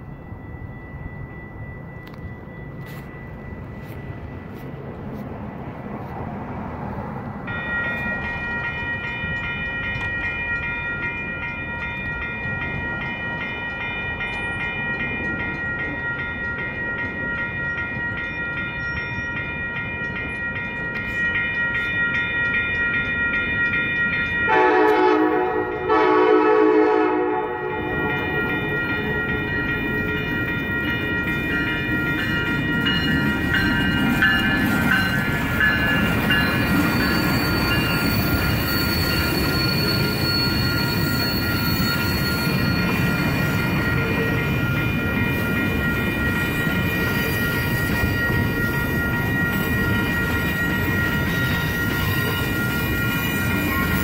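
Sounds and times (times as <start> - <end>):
train approaching with low rumble: 0.0 - 54.0
train bell ringing: 0.0 - 54.0
train horn blasts: 24.5 - 28.1.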